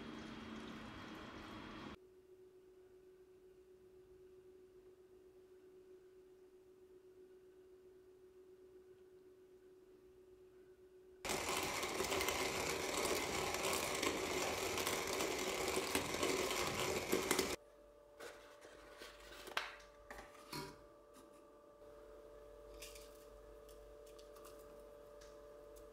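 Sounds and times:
coffee grinder crunching beans: 11.2s - 17.6s
paper rustling: 18.2s - 20.5s.

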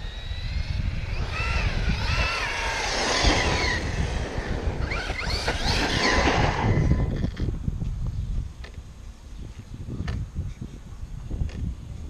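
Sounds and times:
electric motor whining: 0.0s - 7.5s
low rumble: 0.0s - 7.7s.

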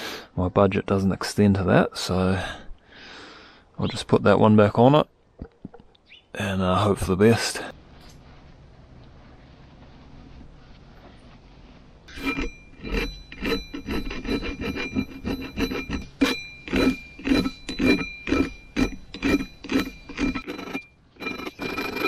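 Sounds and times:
hand file rasping on metal: 12.1s - 22.0s.

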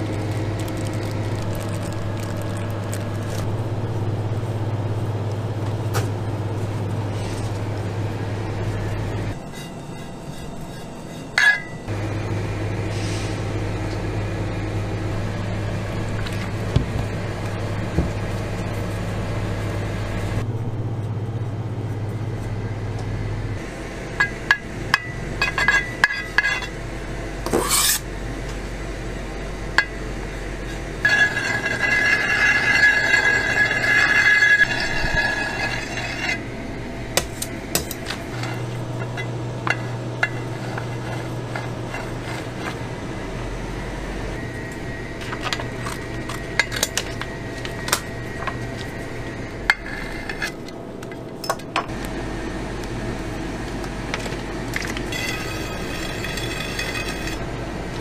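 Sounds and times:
steady low hum: 0.0s - 58.0s
steel scraper scraping cream: 9.4s - 11.9s, 27.5s - 28.1s, 30.7s - 36.4s, 37.8s - 42.8s, 55.1s - 57.4s.

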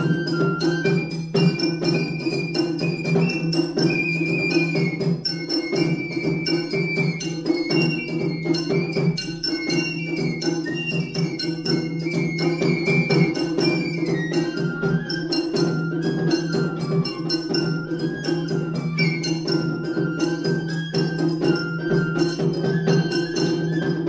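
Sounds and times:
bamboo flute melody: 0.0s - 24.0s
taiko drum strokes: 0.0s - 24.0s.

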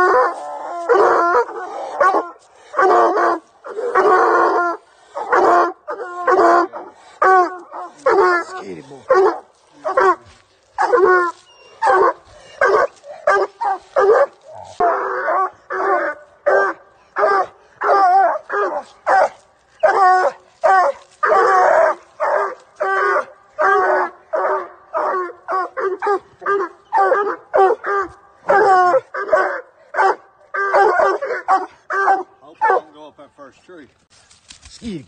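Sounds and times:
puppy yelping and whining: 10.8s - 15.9s.

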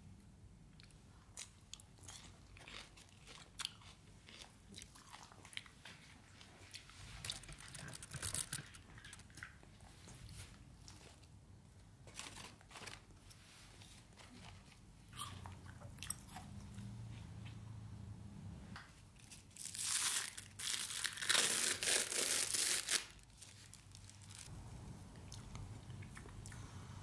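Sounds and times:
plastic wrap crackling: 7.2s - 9.3s, 19.2s - 24.5s.

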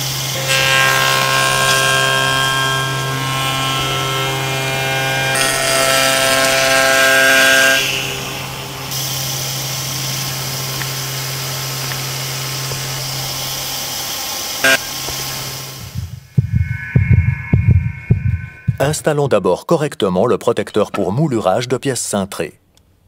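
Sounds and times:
cutter whining on wood: 0.0s - 16.0s
spindle moulder humming: 0.0s - 19.4s.

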